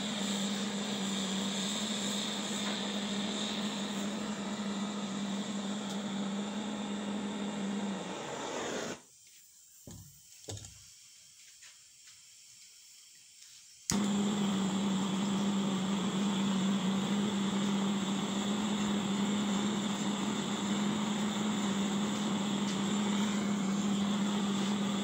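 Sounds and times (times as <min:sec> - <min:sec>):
machine motor humming: 0:00.0 - 0:09.0, 0:13.9 - 0:25.0.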